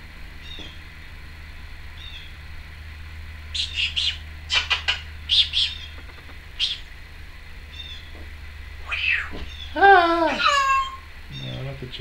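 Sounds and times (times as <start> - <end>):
parrot chirping: 3.5 - 7.0, 7.6 - 8.2, 8.8 - 11.6.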